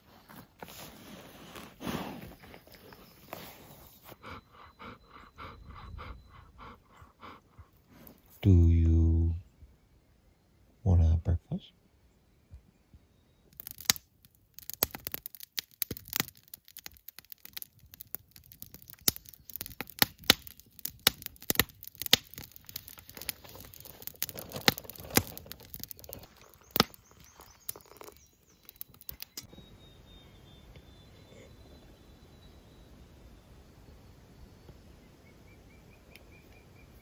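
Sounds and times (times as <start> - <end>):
campfire crackling and popping: 13.5 - 29.5.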